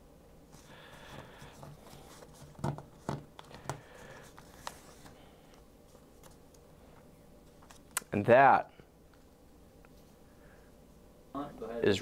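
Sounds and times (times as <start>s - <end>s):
paper rustling: 0.6s - 5.3s.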